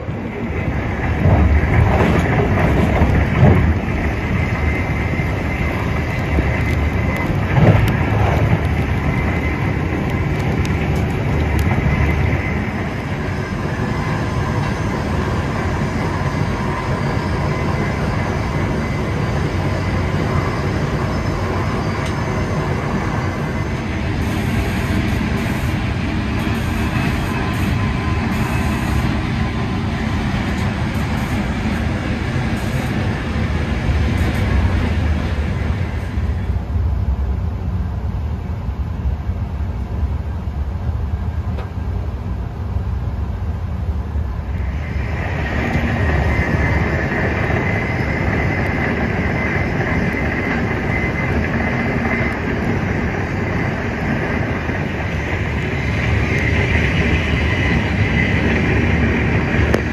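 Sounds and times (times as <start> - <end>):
train wheels rumbling on track: 0.0 - 59.9
hiss: 24.1 - 29.6, 30.4 - 34.8.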